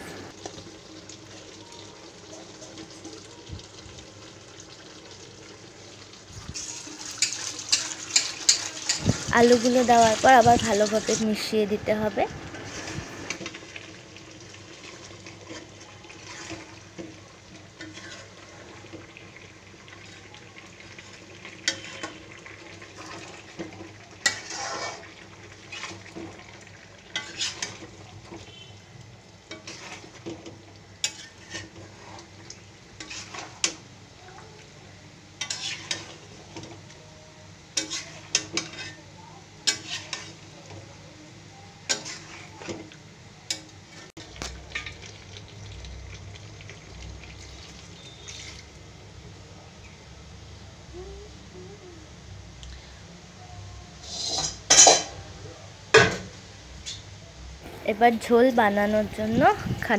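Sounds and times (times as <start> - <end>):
low frying hiss: 0.0 - 59.9
spoon clinking and scraping pan: 6.7 - 9.1, 23.0 - 25.1, 27.1 - 28.5, 31.0 - 32.2, 35.4 - 36.7, 37.8 - 39.0, 39.6 - 40.4, 41.9 - 42.8, 54.0 - 55.2.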